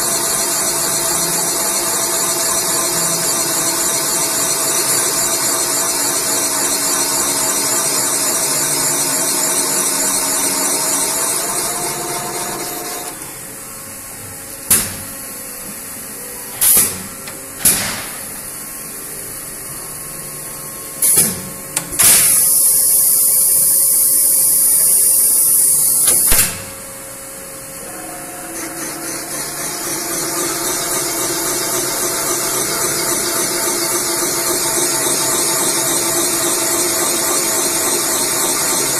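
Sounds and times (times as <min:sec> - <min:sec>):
machine spindle humming: 0:00.0 - 0:14.6, 0:22.6 - 0:38.9.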